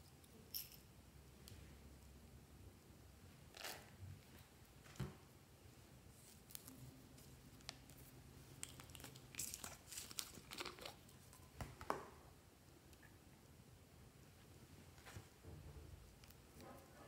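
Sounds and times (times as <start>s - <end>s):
slime squelching: 8.5s - 11.4s
plastic bottle crinkling and clicking: 8.6s - 12.1s.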